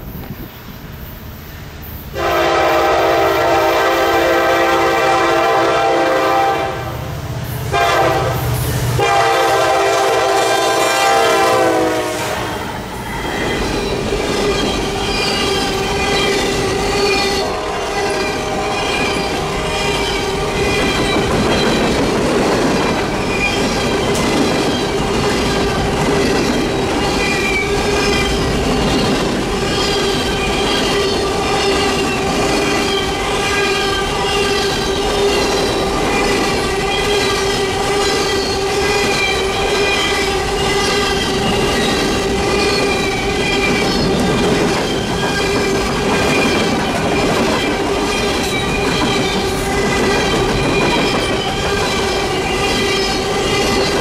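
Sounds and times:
locomotive air horn blasts: 2.2s - 7.0s, 7.7s - 12.8s, 17.3s - 19.0s
train wheels clattering on rails: 7.0s - 54.0s
train wheels squealing: 12.5s - 54.0s.

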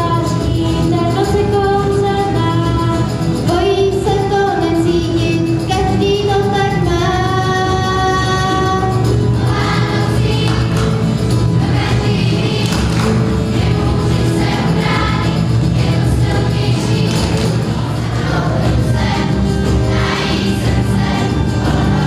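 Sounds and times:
band accompaniment: 0.0s - 22.0s
choir singing a carol: 8.2s - 22.0s.

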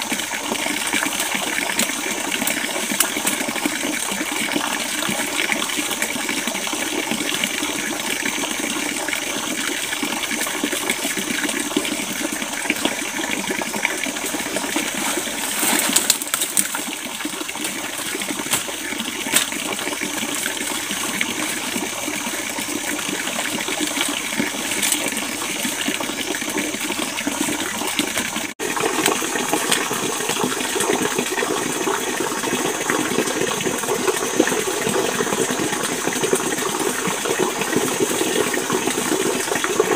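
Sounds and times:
stream water rushing: 0.0s - 39.9s
leaves and stems rustling: 14.7s - 20.0s, 24.0s - 25.4s.

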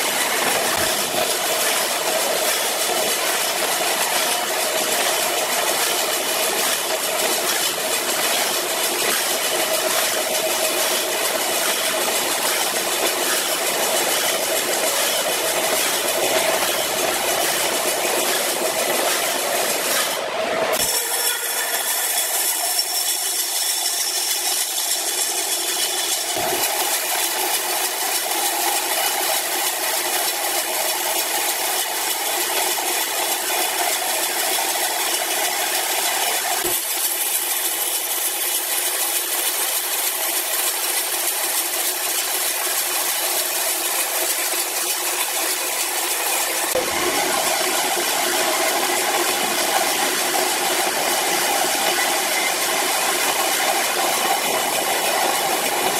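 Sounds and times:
band saw mill cutting log: 0.0s - 55.9s.

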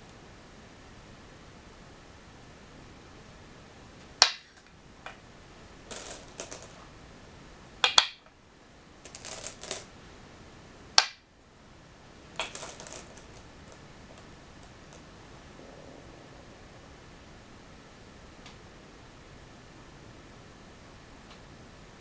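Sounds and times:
go stones clacking on wooden board: 4.2s - 5.2s, 5.9s - 6.8s, 7.8s - 8.3s, 9.0s - 9.9s, 12.4s - 15.0s
stones rattling in a bowl: 5.8s - 6.8s, 9.0s - 9.9s, 12.4s - 15.1s.

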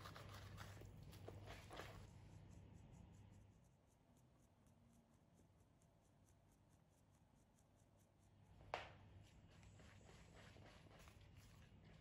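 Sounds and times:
powder shaken through mesh sieve: 0.0s - 2.1s, 9.4s - 12.0s.

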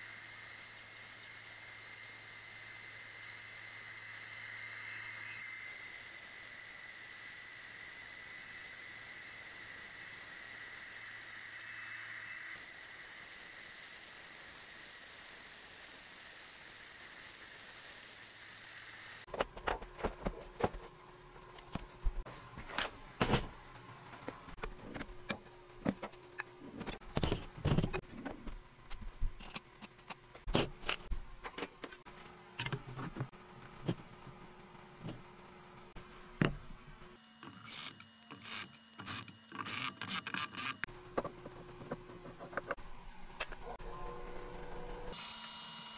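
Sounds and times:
bandsaw cutting: 37.3s - 40.9s.

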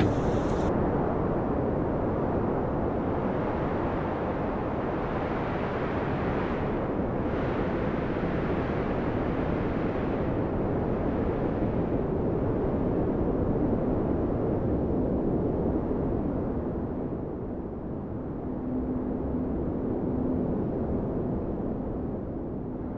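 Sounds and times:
storm wind blowing: 0.0s - 14.3s.

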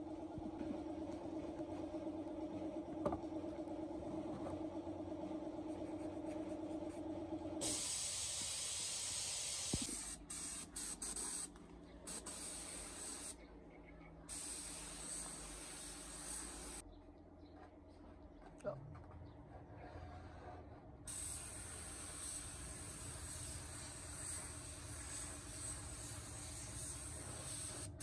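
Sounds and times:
workshop machine humming: 0.0s - 8.7s
air spray gun hissing: 7.6s - 11.5s, 12.1s - 13.4s, 14.3s - 16.8s, 21.1s - 28.0s.

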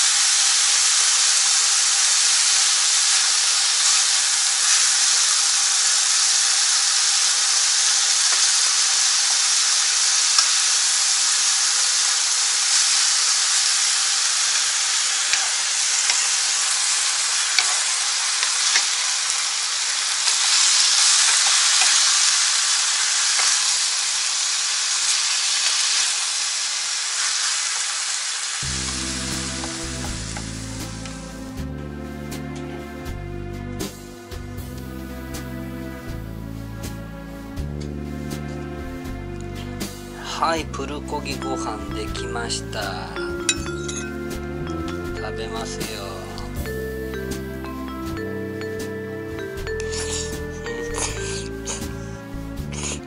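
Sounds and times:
meat sizzling in a frying pan: 0.0s - 31.4s, 49.4s - 53.0s
music: 28.6s - 53.0s.

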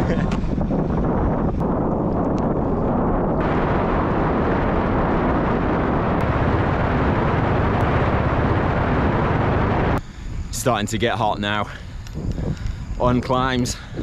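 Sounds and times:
low rumble: 0.0s - 10.6s
wind rush on microphone: 0.0s - 14.0s.

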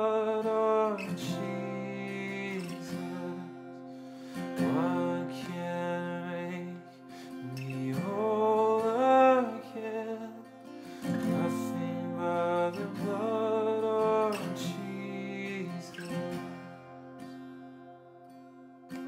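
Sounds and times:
man singing a hymn: 0.0s - 3.5s, 4.6s - 10.4s, 11.1s - 16.0s
acoustic guitar chords: 0.0s - 19.0s.

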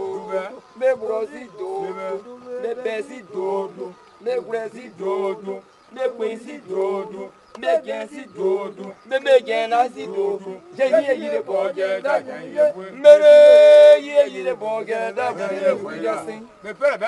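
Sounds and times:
man chanting: 0.0s - 17.0s.

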